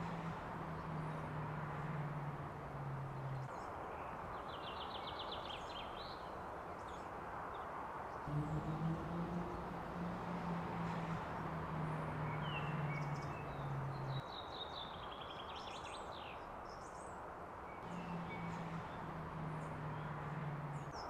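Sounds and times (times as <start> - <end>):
low steady hum: 0.0 - 3.5, 8.3 - 14.2, 17.8 - 21.0
small birds chirping and trilling: 8.3 - 14.4, 17.8 - 21.0.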